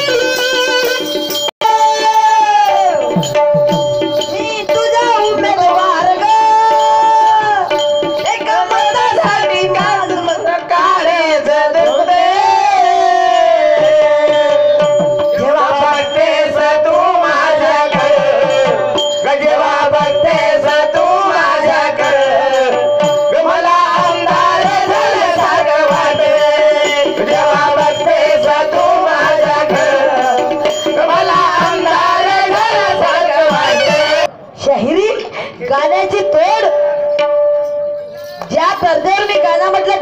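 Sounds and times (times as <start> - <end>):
voices singing through pa: 1.6 - 34.6
hand drum: 2.4 - 10.4, 13.8 - 34.3.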